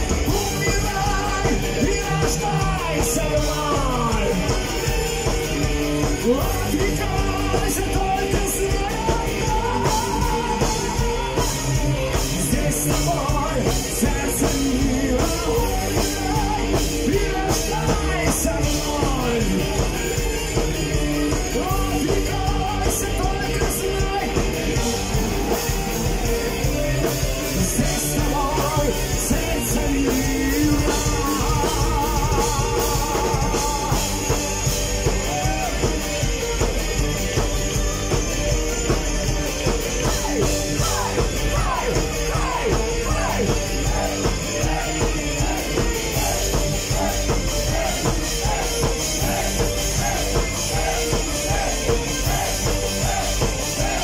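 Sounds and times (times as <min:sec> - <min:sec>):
man singing: 0:00.0 - 0:36.0, 0:40.0 - 0:54.0
rock band playing: 0:00.0 - 0:54.0.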